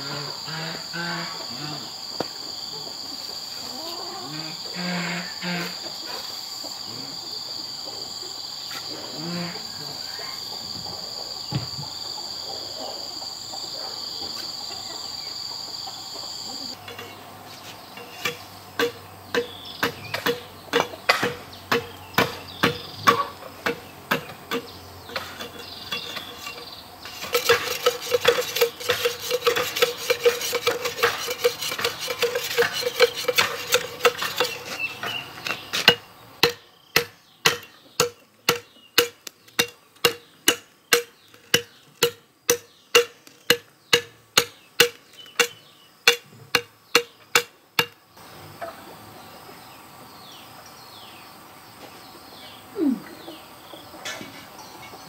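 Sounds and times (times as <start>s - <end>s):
birds: 0.0s - 55.0s
insects: 0.0s - 55.0s
metal blade chopping bamboo: 18.2s - 48.0s.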